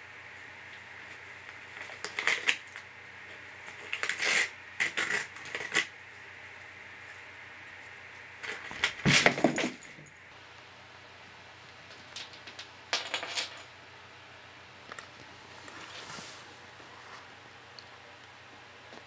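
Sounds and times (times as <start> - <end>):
paper crinkling and tearing: 1.8 - 2.8, 3.7 - 5.9.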